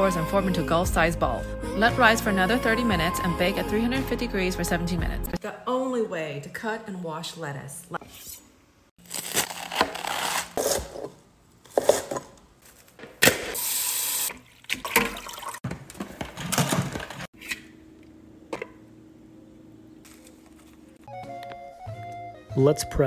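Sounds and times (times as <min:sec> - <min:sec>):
knife cutting lettuce: 0:09.0 - 0:12.9
tap water running and splashing: 0:13.6 - 0:15.6.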